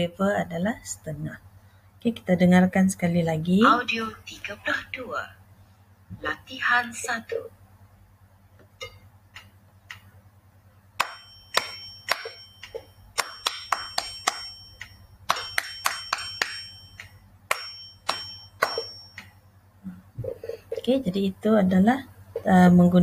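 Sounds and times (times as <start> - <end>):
hand claps in rhythm: 11.0 - 18.9
high ringing tone: 11.0 - 19.6.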